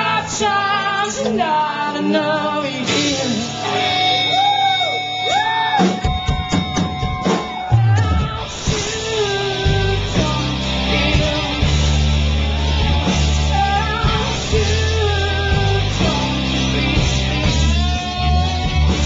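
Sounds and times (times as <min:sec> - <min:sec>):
electric guitar bending notes: 0:00.0 - 0:19.0
person singing: 0:00.0 - 0:19.0
drums and bass heavy hits: 0:05.8 - 0:19.0.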